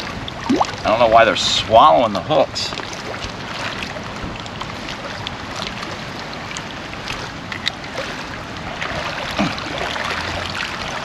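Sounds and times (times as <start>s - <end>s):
waves lapping on stony shore: 0.0s - 11.0s
wind on microphone: 2.5s - 11.0s.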